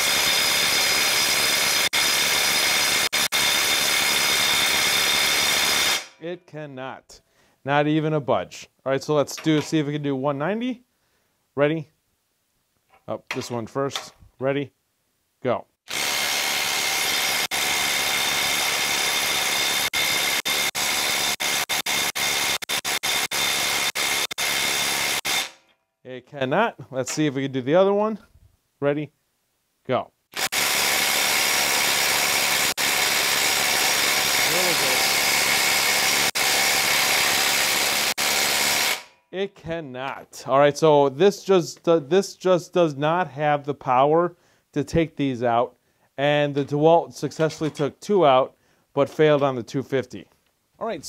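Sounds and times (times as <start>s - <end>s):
impact wrench hammering: 0.0s - 6.2s, 15.9s - 25.7s, 30.4s - 39.2s.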